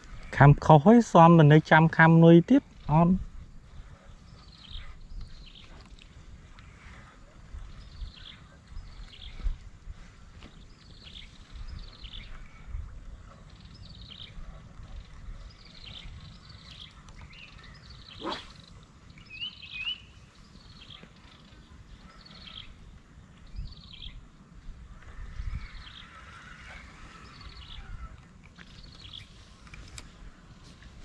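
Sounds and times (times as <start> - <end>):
birds calling: 0.0 - 30.4
quick swish: 18.2 - 18.6.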